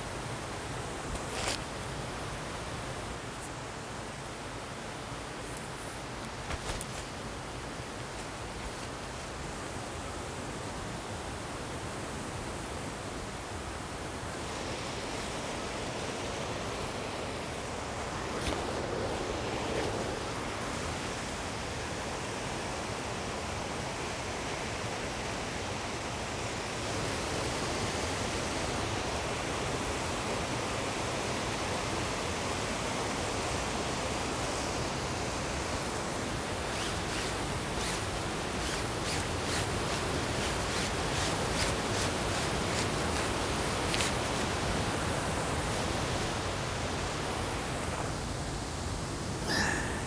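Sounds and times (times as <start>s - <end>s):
mountain stream rushing over rocks: 0.0s - 50.0s
rustling: 5.5s - 7.2s, 36.3s - 46.0s.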